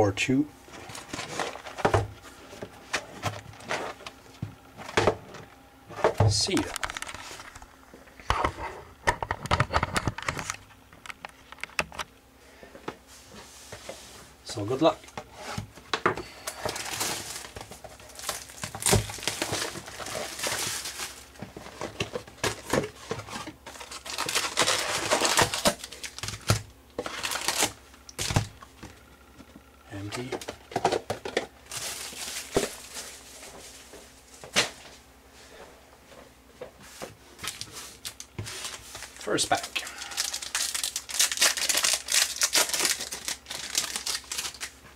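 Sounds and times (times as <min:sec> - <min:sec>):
cardboard rustling: 0:00.7 - 0:04.2, 0:15.2 - 0:28.5, 0:30.0 - 0:35.0
foil packs crinkling: 0:00.7 - 0:05.0, 0:16.2 - 0:28.9, 0:29.9 - 0:34.8, 0:37.4 - 0:44.9.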